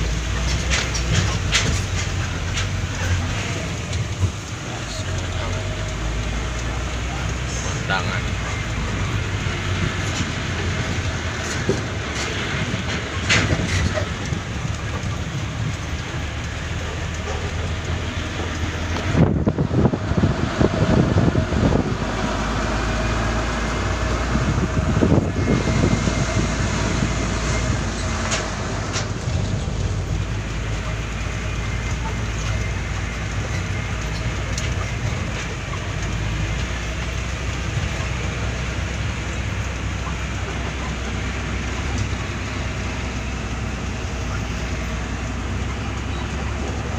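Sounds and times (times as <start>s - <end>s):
cab rattling and clatter: 0.0s - 46.9s
truck engine rumble: 0.0s - 46.9s
heavy knocking and jolting rattles: 9.8s - 20.1s.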